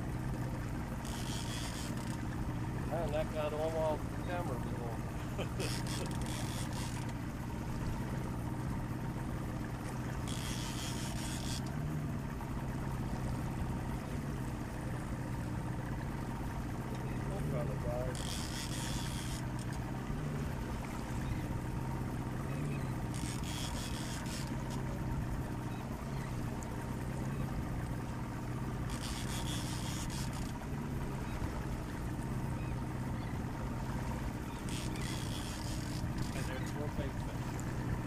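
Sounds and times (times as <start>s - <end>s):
boat engine idling: 0.0s - 38.0s.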